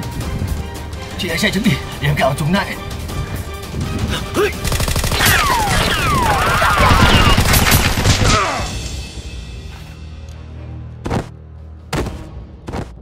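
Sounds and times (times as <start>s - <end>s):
background music: 0.0s - 13.0s
automatic gunfire sound effects: 4.6s - 8.6s.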